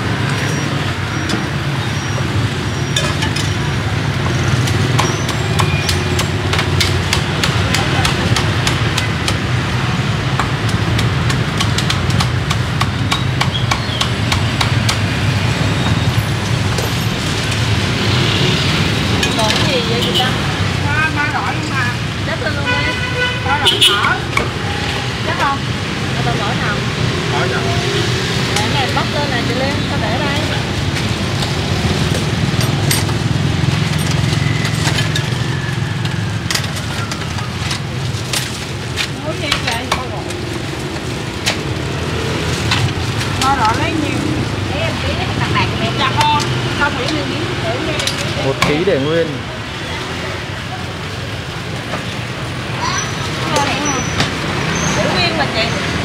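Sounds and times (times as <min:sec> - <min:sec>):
street traffic rumble: 0:00.0 - 0:56.0
cleaver chopping pork: 0:04.7 - 0:09.6, 0:10.3 - 0:15.3.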